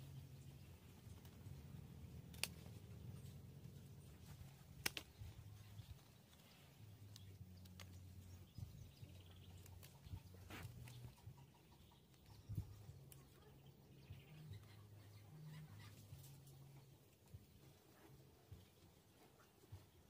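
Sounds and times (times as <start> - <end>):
pruning shears snipping stem: 2.2 - 3.3, 4.3 - 5.7.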